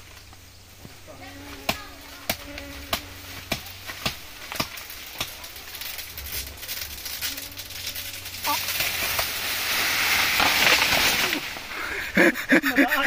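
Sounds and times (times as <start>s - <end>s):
steady hiss: 0.0s - 13.0s
blade chopping plants: 1.5s - 7.2s, 8.4s - 11.7s.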